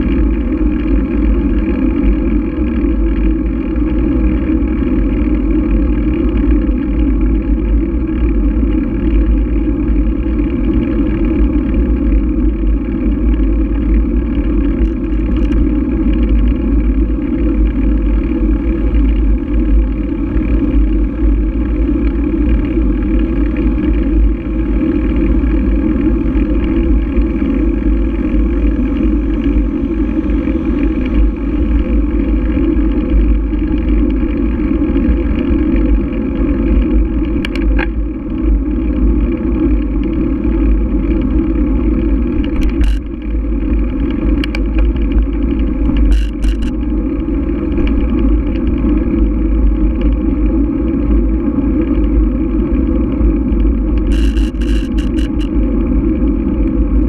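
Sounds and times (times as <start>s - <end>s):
wind buffeting: 21.3s - 36.5s.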